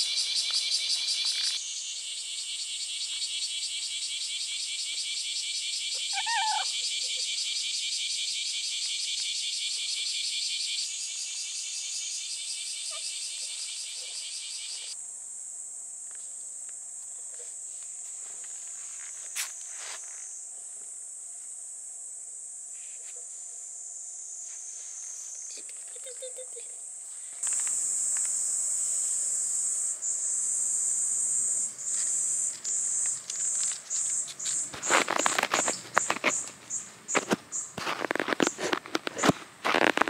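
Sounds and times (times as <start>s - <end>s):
cicadas singing: 0.0s - 40.0s
steady high buzz: 26.6s - 39.6s.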